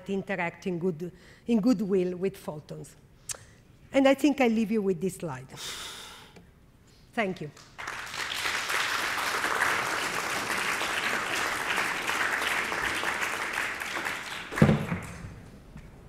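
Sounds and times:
audience applauding: 7.6s - 15.3s.

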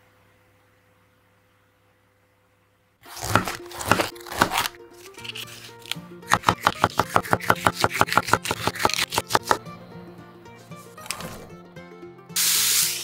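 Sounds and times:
knife slicing on wooden board: 3.0s - 9.6s
light background music: 3.2s - 13.0s.

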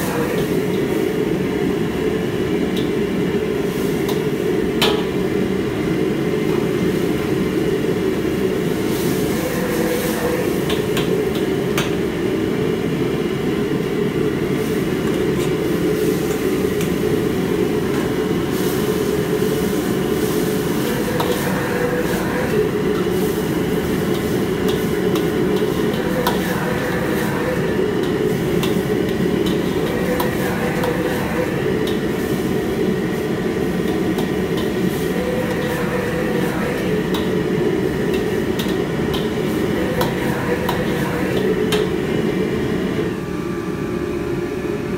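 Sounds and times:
gas burner rumbling: 0.0s - 44.9s
metal ladle scraping a wok: 20.2s - 41.9s.

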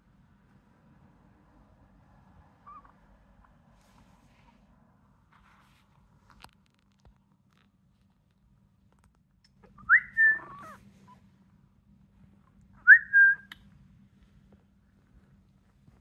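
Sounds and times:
puppy crying: 9.6s - 10.9s.

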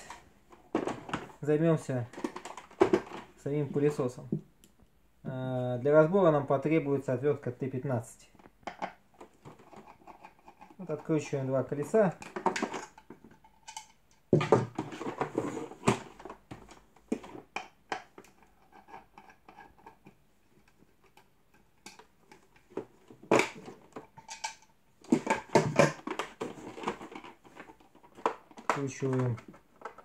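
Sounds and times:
plastic casing knocks and clicks: 2.1s - 3.4s, 8.4s - 10.0s, 12.2s - 13.3s, 14.3s - 18.4s, 21.1s - 30.0s.

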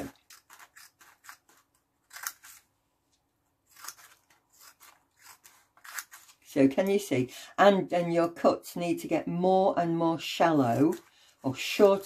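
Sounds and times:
scissors snipping paper: 0.0s - 2.7s, 3.7s - 6.4s.

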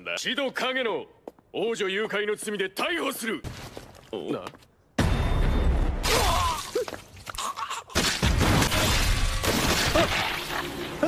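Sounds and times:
crashing and shattering: 8.0s - 10.7s.

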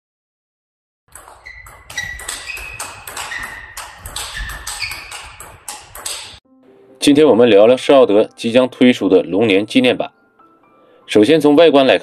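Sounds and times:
table tennis ball bouncing: 1.1s - 6.4s.

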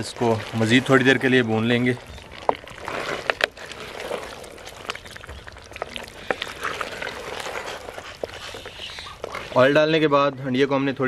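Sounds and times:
meat sizzling in oil: 0.0s - 9.8s
wooden spoon stirring: 0.0s - 10.4s.

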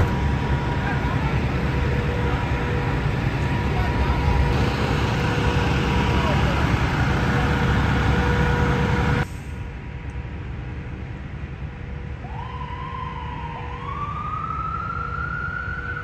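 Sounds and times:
light traffic noise: 0.0s - 16.0s
vehicle engines rumbling with hum: 0.0s - 16.0s
ambulance siren wailing: 12.2s - 16.0s.

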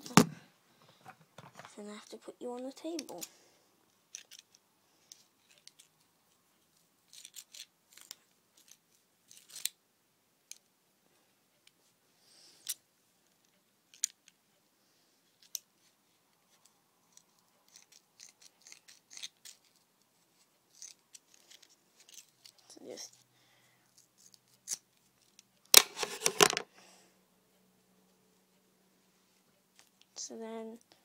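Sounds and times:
scissors snipping yarn: 17.1s - 19.8s.

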